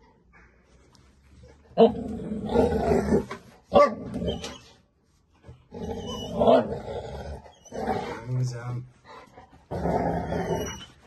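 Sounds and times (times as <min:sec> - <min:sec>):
dogs growling: 0:01.7 - 0:04.5, 0:05.6 - 0:08.6, 0:09.3 - 0:11.0
dogs barking: 0:03.7 - 0:04.5.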